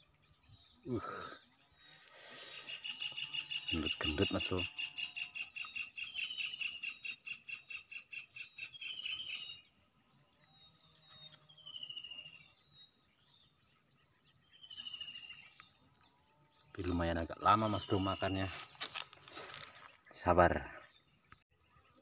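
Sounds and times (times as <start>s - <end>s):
bird trilling: 2.7s - 9.7s.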